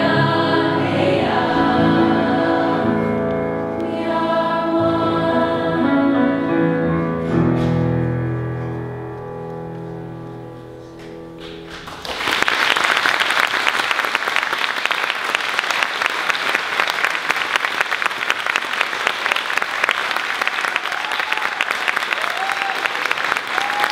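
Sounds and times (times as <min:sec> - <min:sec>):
choir holding a chord: 0:00.0 - 0:07.0
audience applause: 0:11.7 - 0:23.9.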